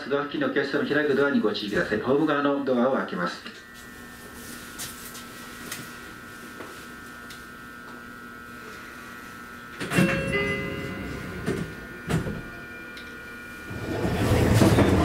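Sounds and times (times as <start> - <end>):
train electrical whine: 0.0 - 15.0
door chime: 9.8 - 13.4
sliding doors clattering: 13.7 - 15.0.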